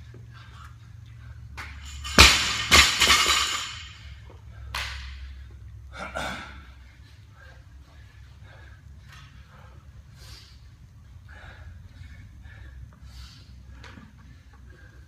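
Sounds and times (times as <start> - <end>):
barbell hitting rubber floor: 1.8 - 4.0.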